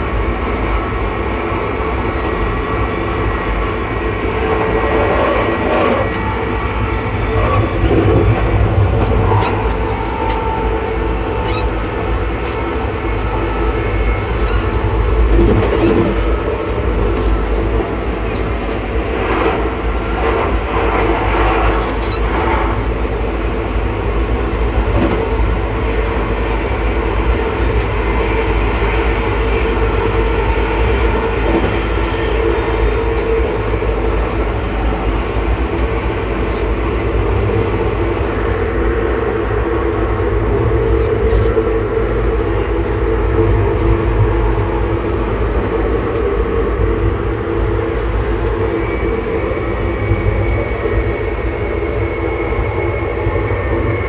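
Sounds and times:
train running gear rumble: 0.0 - 54.0
traction motor whine: 3.6 - 17.2.

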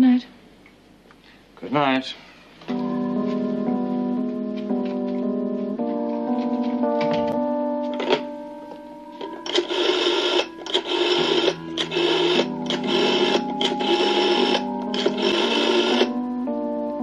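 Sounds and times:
soft keyboard background music: 2.6 - 17.0
rotary dial whirring: 9.2 - 16.2.

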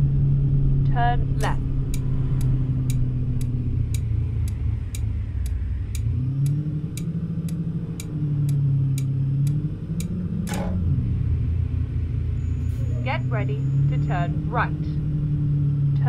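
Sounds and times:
car engine hum: 0.0 - 16.0
road noise: 0.0 - 16.0
car turn signal clicking: 1.4 - 10.8.

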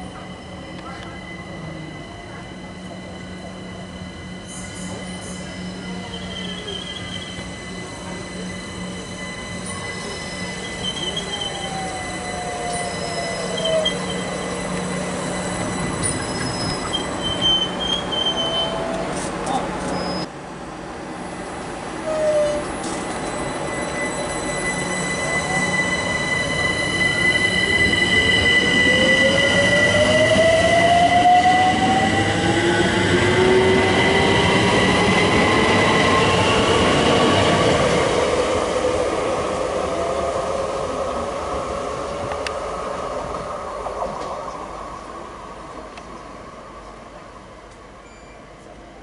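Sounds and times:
high whistle: 4.4 - 19.0, 22.1 - 31.8.

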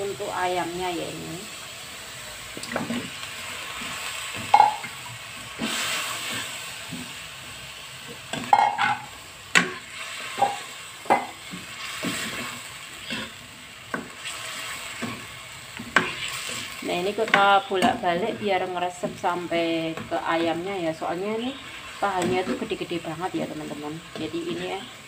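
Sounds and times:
chicken sizzling in a wok: 0.0 - 25.0
spatula scraping and knocking pan: 8.2 - 20.7, 22.1 - 22.8.

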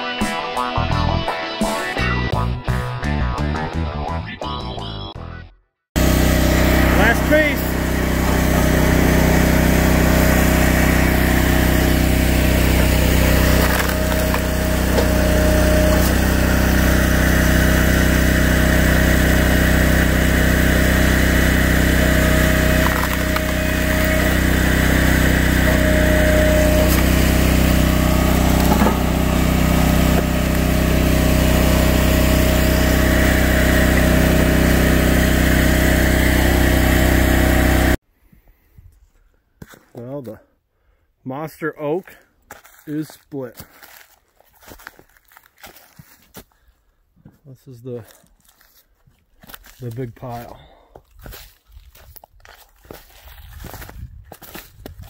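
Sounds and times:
log splitter engine running: 6.0 - 38.0.

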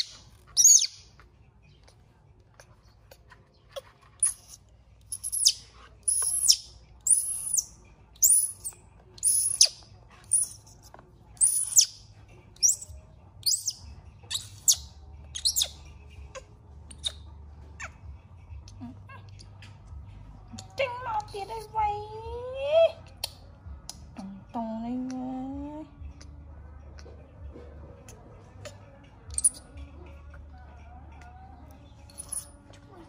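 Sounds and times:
baby monkey screaming: 0.0 - 1.0, 11.4 - 11.9, 12.6 - 17.2.

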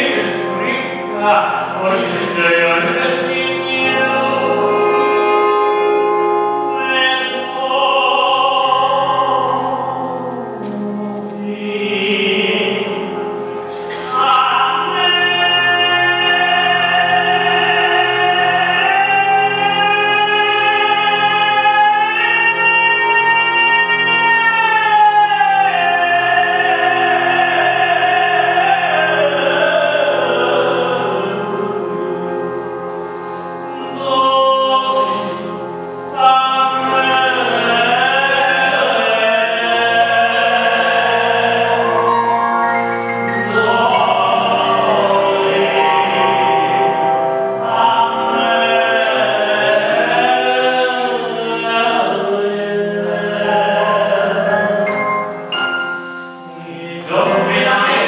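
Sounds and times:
men singing together: 33.8 - 55.0, 56.5 - 58.0.

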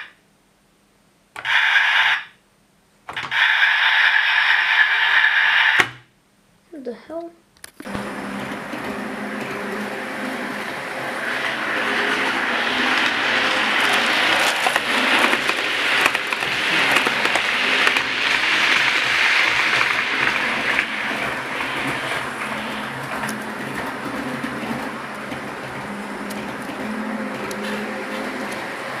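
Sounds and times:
model train motor whirring: 3.3 - 5.8, 7.9 - 29.0
wheels clicking on rails: 7.8 - 29.0.

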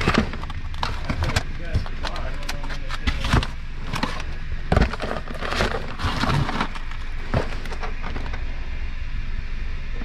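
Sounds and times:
plastic packaging crinkling: 0.0 - 8.2
steady low rumble: 0.0 - 10.0.

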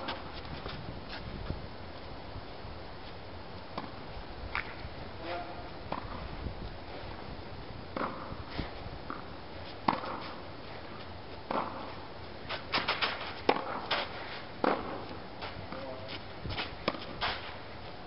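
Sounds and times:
racket strikes and ball bounces: 8.0 - 8.3, 9.1 - 10.4, 11.5 - 11.9, 12.5 - 15.1, 16.6 - 17.6.

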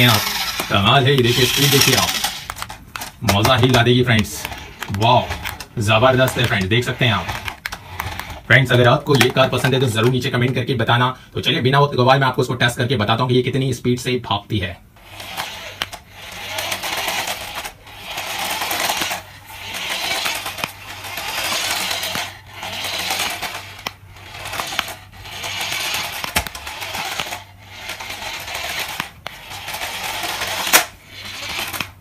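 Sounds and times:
wheels rattling on tiled floor: 0.0 - 8.4, 15.0 - 32.0
toy car motor whirring: 0.0 - 10.1, 15.0 - 32.0.

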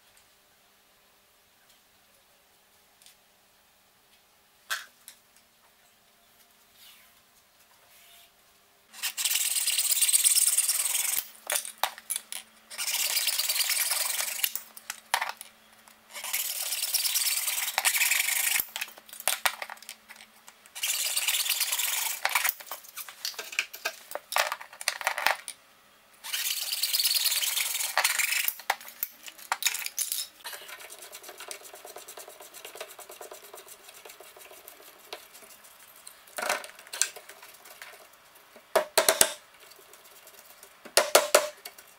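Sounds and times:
handling noises and clicks: 11.1 - 12.5, 17.6 - 20.8, 22.0 - 25.6, 27.6 - 31.4
hacksaw cutting plastic: 12.1 - 14.6, 16.1 - 18.9, 20.8 - 22.6, 26.2 - 28.7.

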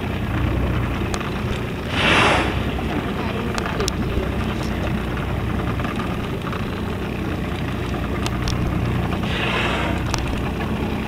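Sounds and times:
boat engine idling: 0.0 - 11.0
brief rushing hiss: 1.9 - 2.7.

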